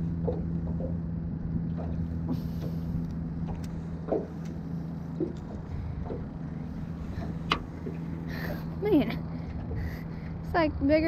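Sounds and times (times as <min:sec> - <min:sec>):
low motor hum: 0:00.0 - 0:11.0.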